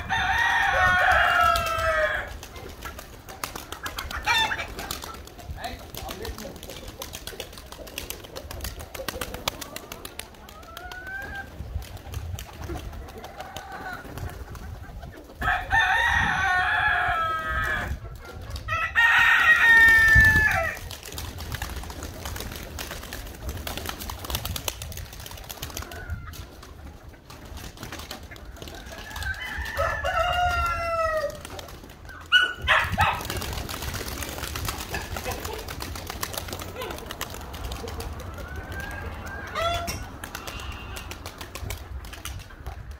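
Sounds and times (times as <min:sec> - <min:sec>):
roosters crowing: 0:00.0 - 0:02.7, 0:03.9 - 0:05.0, 0:13.2 - 0:14.2, 0:15.3 - 0:18.0, 0:18.6 - 0:21.0, 0:28.6 - 0:31.7, 0:32.3 - 0:33.5, 0:38.0 - 0:41.4
pigeon wings flapping: 0:00.4 - 0:15.0, 0:19.6 - 0:42.9.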